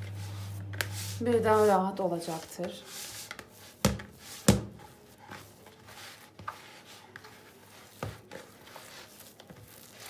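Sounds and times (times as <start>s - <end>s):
dough squishing: 0.0s - 10.0s
dull thumps on dough: 3.8s - 4.8s.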